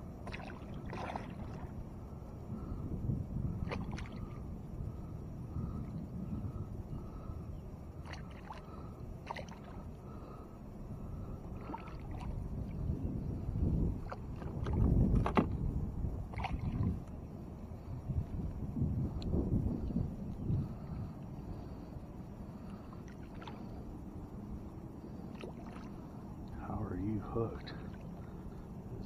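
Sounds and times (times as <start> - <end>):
water sloshing and splashing: 0.2 - 1.8, 3.6 - 4.4, 8.0 - 10.4, 11.5 - 15.6, 16.3 - 17.1, 22.6 - 23.9, 25.0 - 26.6, 27.2 - 28.6.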